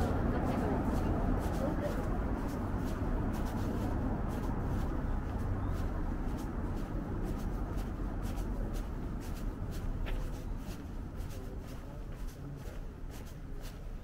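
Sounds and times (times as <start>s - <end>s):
footsteps on pavement: 0.0s - 14.0s
low city rumble: 0.0s - 14.0s.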